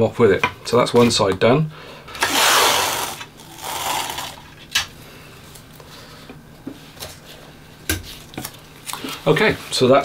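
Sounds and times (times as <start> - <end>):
masking tape ripping: 2.2 - 4.4.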